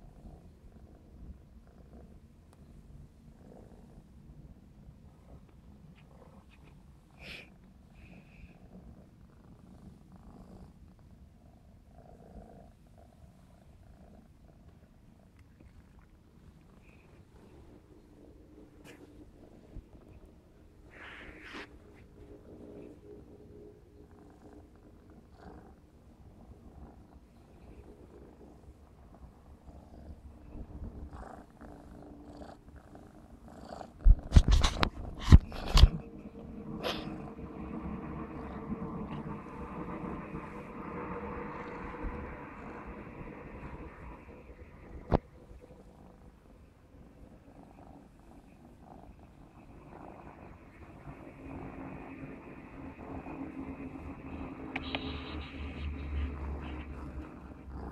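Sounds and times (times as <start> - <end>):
kitten purring: 0.0 - 57.9
fur rubbing against microphone: 18.8 - 23.1, 33.8 - 37.4, 54.3 - 57.9.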